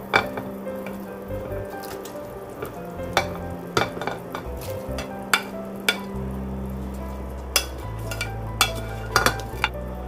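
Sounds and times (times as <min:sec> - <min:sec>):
soup bubbling: 0:00.0 - 0:10.0
dishware clinking against pot: 0:03.1 - 0:06.1, 0:07.6 - 0:09.7.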